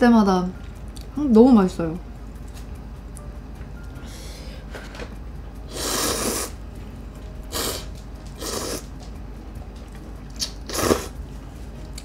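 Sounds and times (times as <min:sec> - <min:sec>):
person slurping noodles: 0:05.7 - 0:06.6, 0:07.5 - 0:08.9, 0:10.4 - 0:11.2.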